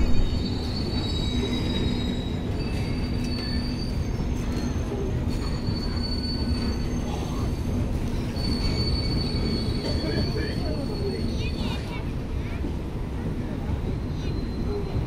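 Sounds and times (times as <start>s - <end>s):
train coaches rumbling on rails: 0.0s - 15.0s
high-pitched wheel squeal: 0.1s - 4.4s, 5.4s - 11.5s.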